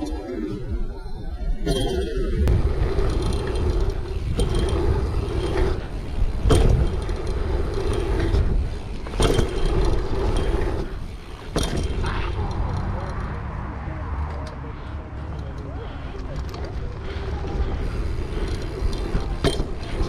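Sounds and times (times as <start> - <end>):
wind buffeting microphone: 2.2 - 20.0
bike landing thumps: 2.4 - 12.3, 18.1 - 20.0
tyres rumbling over dirt: 2.4 - 20.0.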